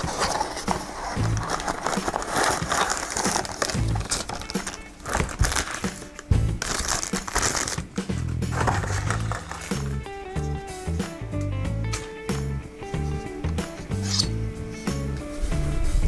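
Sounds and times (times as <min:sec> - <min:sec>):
cardboard box handled: 0:00.0 - 0:09.9
plastic bag crinkling: 0:00.0 - 0:09.9
background music with bass: 0:01.0 - 0:02.8, 0:03.4 - 0:16.0.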